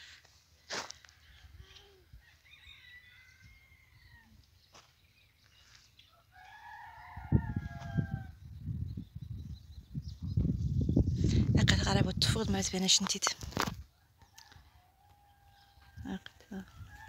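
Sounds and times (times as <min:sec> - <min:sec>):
rooster crowing: 0:02.2 - 0:04.4, 0:06.3 - 0:08.4, 0:16.7 - 0:17.0.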